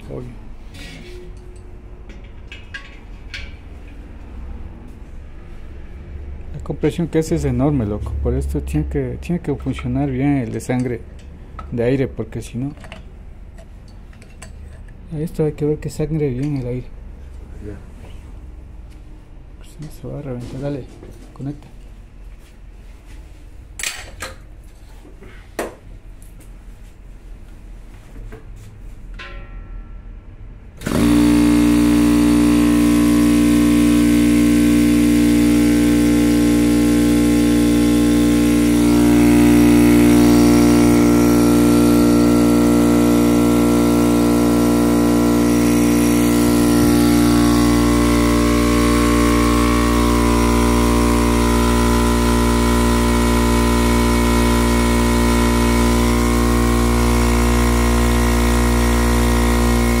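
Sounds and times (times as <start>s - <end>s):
air compressor humming: 30.8s - 60.0s.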